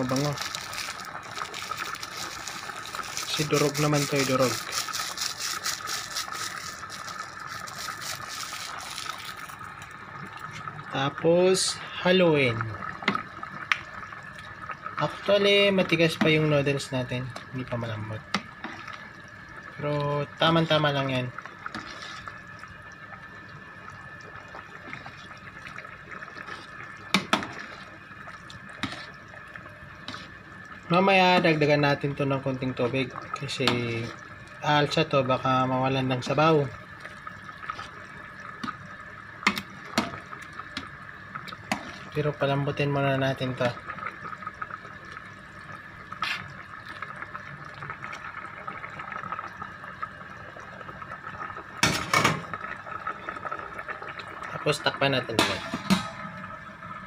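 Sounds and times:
soup simmering: 0.0s - 57.0s
ladle stirring soup: 20.5s - 23.3s, 24.4s - 30.6s, 37.0s - 42.5s.

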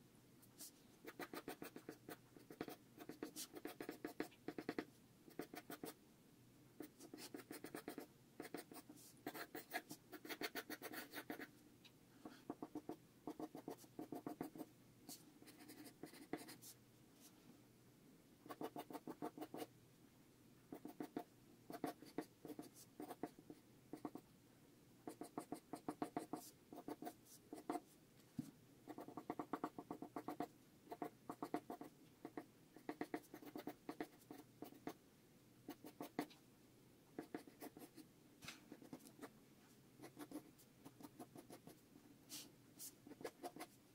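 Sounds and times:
pencil scratching on paper: 0.6s - 6.0s, 6.8s - 11.5s, 12.2s - 16.8s, 18.5s - 19.7s, 20.7s - 24.2s, 25.1s - 27.9s, 28.9s - 35.0s, 35.7s - 36.3s, 37.2s - 38.0s, 38.7s - 39.3s, 40.0s - 43.8s.

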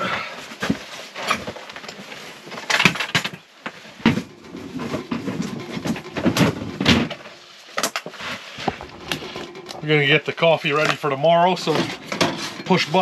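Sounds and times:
knocks and bumps: 4.0s - 7.4s, 8.6s - 13.0s.

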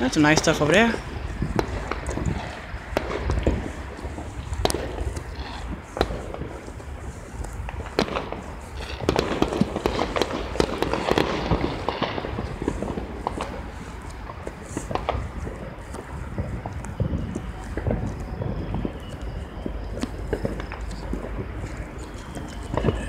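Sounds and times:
fireworks bangs and pops: 0.0s - 23.0s.

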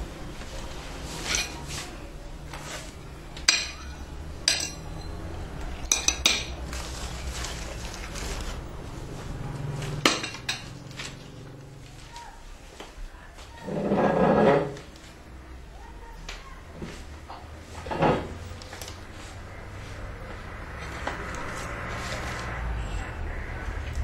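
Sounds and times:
cutlery clinking against plates: 1.2s - 1.8s, 3.4s - 6.6s, 10.0s - 11.2s.

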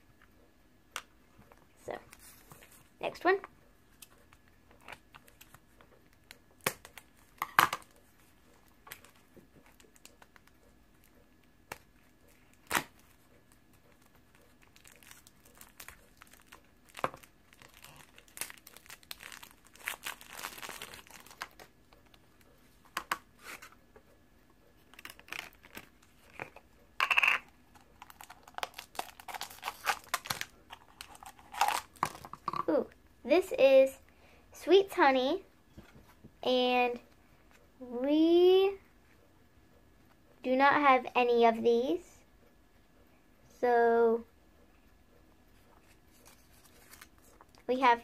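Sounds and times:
plastic packaging crinkling: 14.0s - 21.7s, 24.9s - 26.5s, 27.7s - 32.5s, 46.1s - 47.6s
packaging tearing: 14.7s - 21.6s, 27.7s - 32.2s.

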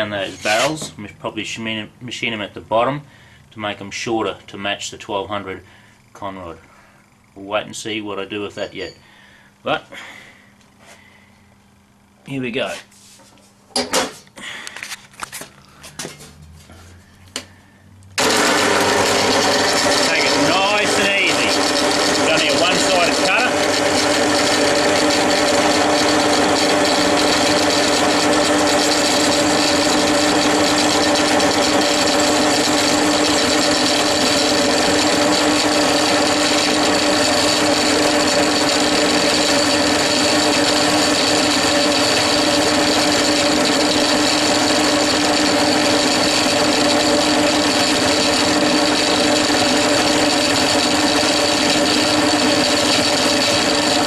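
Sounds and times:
boring cutter cutting hiss: 0.0s - 1.0s, 19.0s - 54.0s
drill press running: 0.0s - 1.0s, 18.2s - 54.0s.

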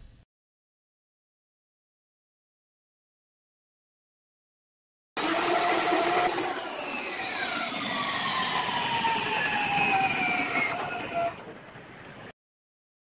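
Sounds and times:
spring-charging motor whining: 5.2s - 11.5s.

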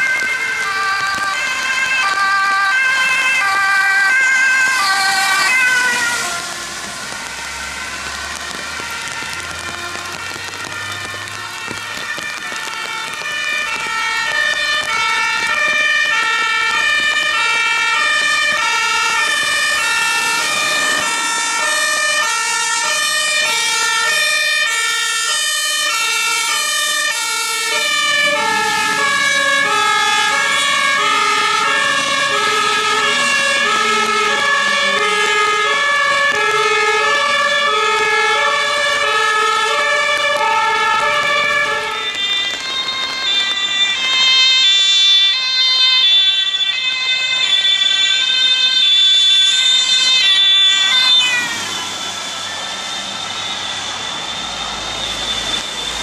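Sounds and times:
fire engine two-tone siren: 0.0s - 56.0s
truck driving on wet road: 0.0s - 56.0s.

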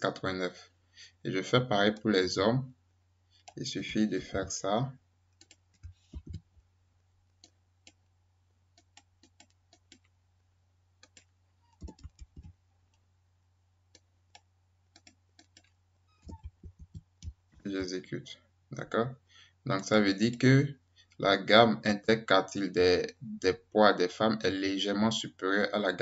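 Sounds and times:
keyboard and mouse clicks: 5.4s - 6.5s, 8.8s - 10.1s, 11.0s - 13.0s, 13.9s - 17.7s
heavy keystroke thumps: 16.2s - 17.7s.

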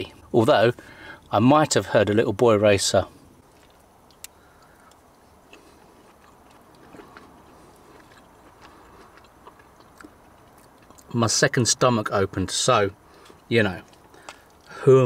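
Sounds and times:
faint chewing: 3.4s - 11.6s, 13.0s - 14.8s.

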